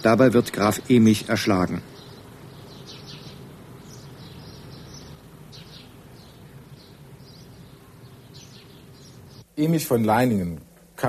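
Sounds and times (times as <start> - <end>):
small birds chirping: 0.0 - 11.0
steady low hum: 0.0 - 11.0.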